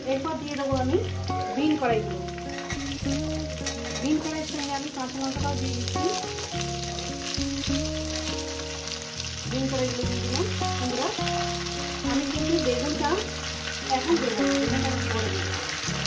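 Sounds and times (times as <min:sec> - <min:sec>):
background music with held notes: 0:00.0 - 0:16.0
vegetables sizzling in hot oil: 0:00.0 - 0:16.0.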